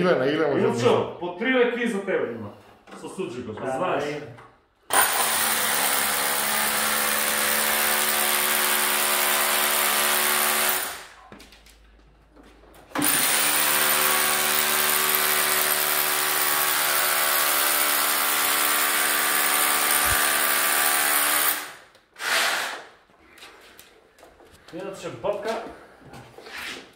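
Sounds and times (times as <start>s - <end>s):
electric power drill running: 4.9s - 11.0s, 13.0s - 22.8s.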